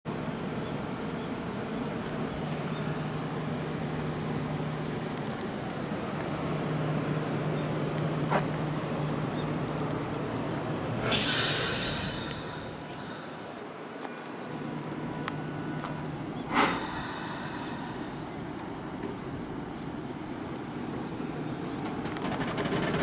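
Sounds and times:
electric train humming: 0.1s - 23.0s
hissing burst: 11.0s - 13.5s.

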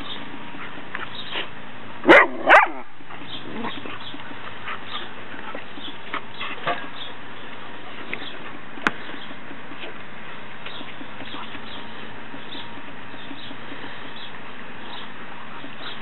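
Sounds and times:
dog barking: 2.1s - 2.9s.

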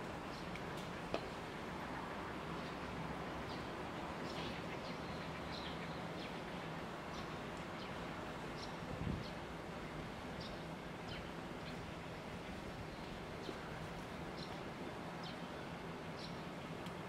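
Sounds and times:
outdoor background noise: 0.0s - 17.0s
small birds chirping: 0.2s - 9.5s, 10.3s - 17.0s.

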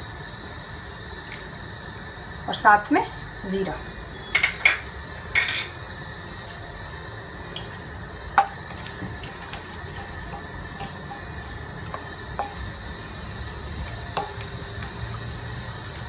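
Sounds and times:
spices crackling in hot oil: 0.0s - 16.0s
wooden spatula stirring in pan: 5.9s - 16.0s.

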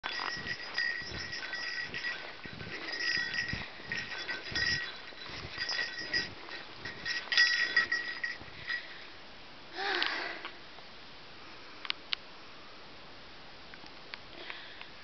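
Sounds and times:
footsteps crunching through snow: 0.0s - 8.8s
high jingling: 0.0s - 9.2s.

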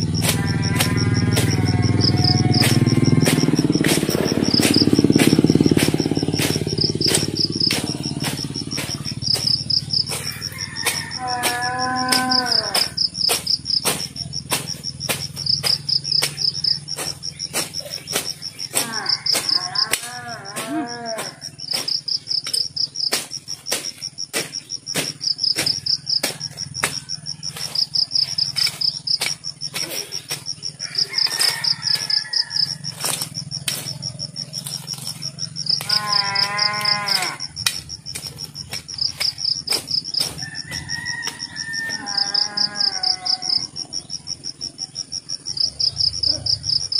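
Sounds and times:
crickets trilling: 0.0s - 46.9s
animal wavering cry: 11.1s - 13.0s, 18.8s - 21.5s, 35.8s - 37.5s, 41.7s - 43.8s.

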